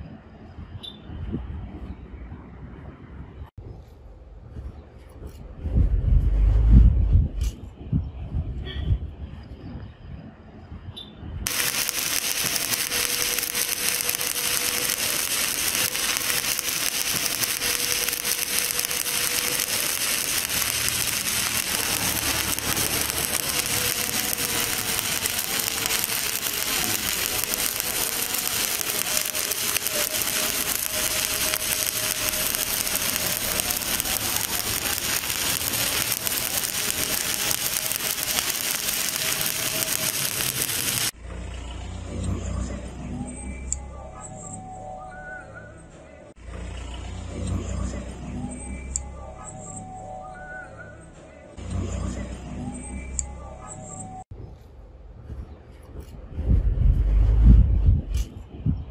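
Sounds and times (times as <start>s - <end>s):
welding arc crackling: 11.5s - 41.2s.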